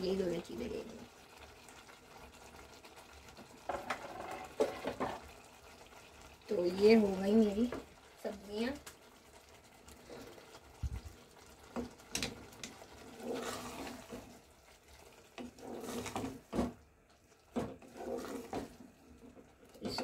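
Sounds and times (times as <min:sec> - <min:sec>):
wooden spoon stirring thick sauce: 0:00.4 - 0:20.0.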